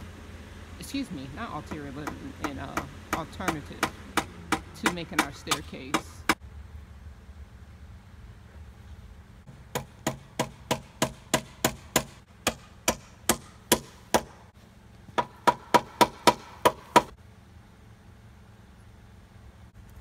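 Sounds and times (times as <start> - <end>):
hammer driving nails into wood: 9.7 - 14.4, 15.2 - 17.1.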